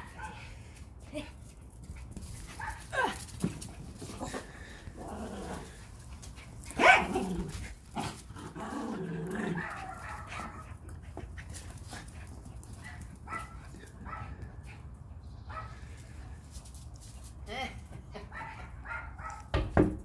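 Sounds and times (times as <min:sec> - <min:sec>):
dogs barking: 0:06.8 - 0:07.2, 0:09.5 - 0:10.7, 0:18.3 - 0:19.5
dog growling: 0:07.0 - 0:09.7.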